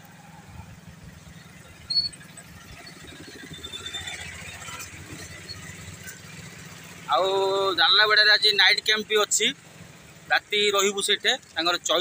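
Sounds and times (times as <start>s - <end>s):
motorcycle engine running: 0.0s - 12.0s
brief high squeak: 1.8s - 2.4s.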